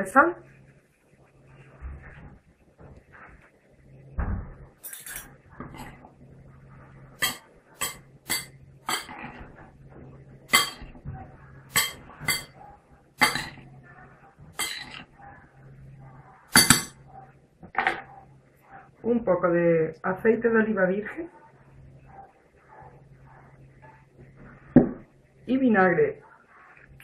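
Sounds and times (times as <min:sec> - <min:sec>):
cutlery clinking on glass bowl: 0:04.8 - 0:05.9, 0:07.2 - 0:09.2, 0:10.5 - 0:10.9, 0:11.7 - 0:12.6, 0:13.2 - 0:13.6, 0:14.6 - 0:15.0, 0:16.6 - 0:17.0.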